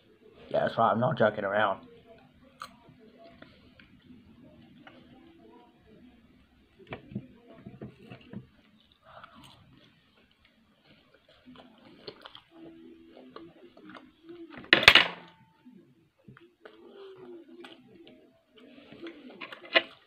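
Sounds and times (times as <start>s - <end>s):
chewing: 2.1s - 5.2s, 7.9s - 14.6s, 16.3s - 20.0s.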